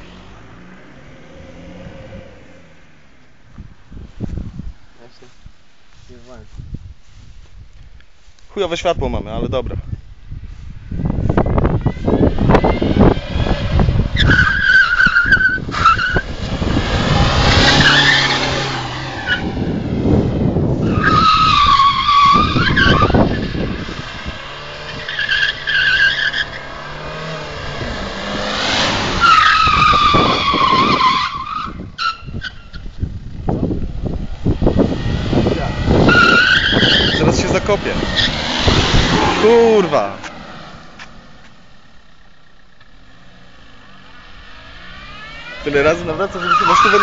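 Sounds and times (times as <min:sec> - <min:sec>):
car engine rumble: 0:00.0 - 0:47.0
tyres squealing: 0:14.2 - 0:16.3, 0:17.1 - 0:19.5, 0:20.8 - 0:24.0, 0:24.7 - 0:27.4, 0:29.0 - 0:32.9, 0:35.5 - 0:41.2, 0:45.2 - 0:47.0.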